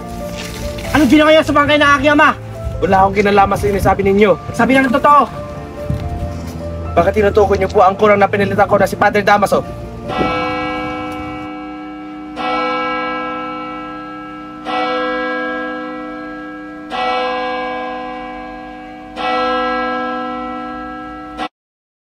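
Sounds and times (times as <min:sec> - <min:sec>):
church bell tolling: 0:00.0 - 0:05.4, 0:10.1 - 0:21.5.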